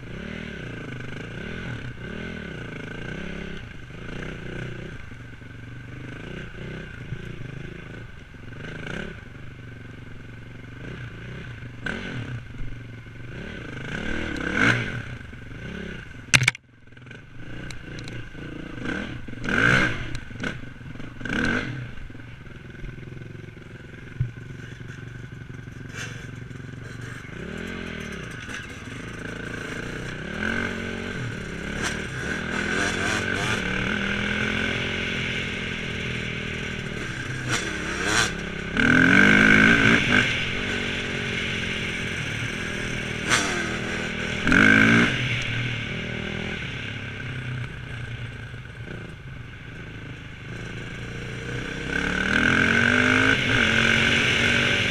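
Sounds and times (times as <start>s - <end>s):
motorcycle engine revving: 0.0s - 54.9s
sharp crack: 16.3s - 16.6s.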